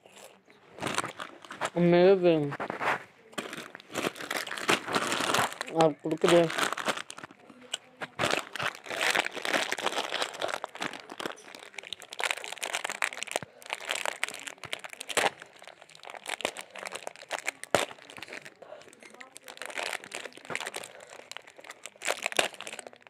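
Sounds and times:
crunching: 0:00.0 - 0:23.0
plastic snack packet crinkling: 0:00.0 - 0:23.0.

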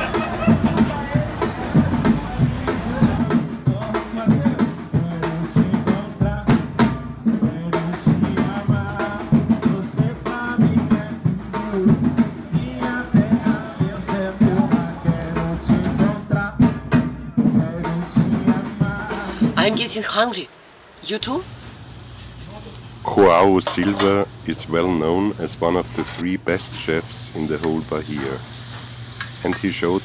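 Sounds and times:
music with drum and percussion beat: 0:00.0 - 0:19.7.

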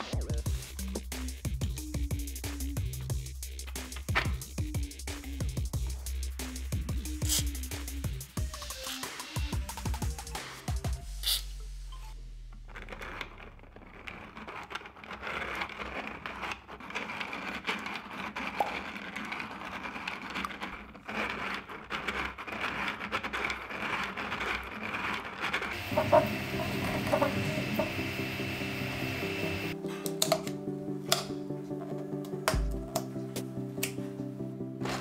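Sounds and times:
music: 0:00.0 - 0:12.4, 0:25.8 - 0:35.0.

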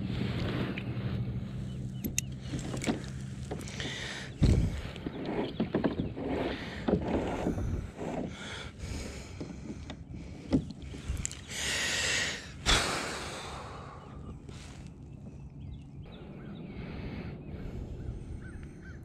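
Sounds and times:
fishing gear knocking and rattling: 0:02.0 - 0:08.3.

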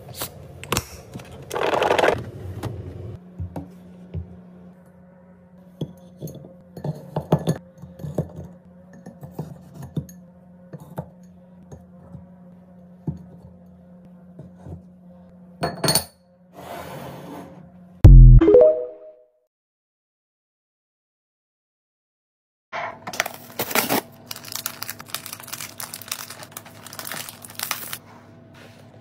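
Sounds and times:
glass knocks and clinks: 0:15.6 - 0:16.2
low thump with falling tones: 0:18.1 - 0:18.6.

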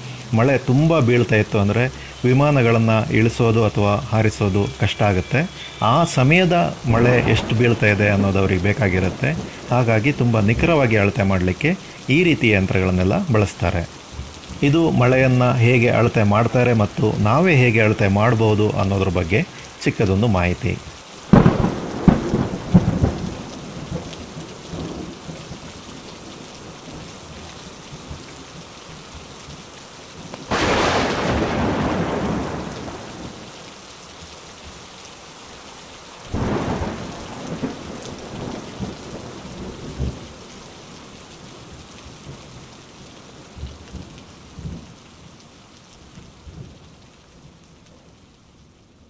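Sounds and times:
thunder rumbling: 0:00.0 - 0:26.4, 0:30.5 - 0:33.5, 0:36.3 - 0:40.4
heavy rain falling: 0:00.0 - 0:49.0.

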